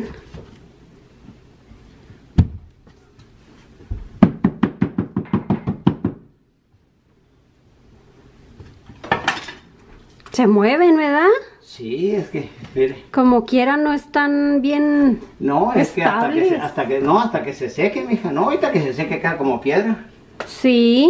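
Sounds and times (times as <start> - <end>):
hand float knocking on tiles: 3.9 - 6.3.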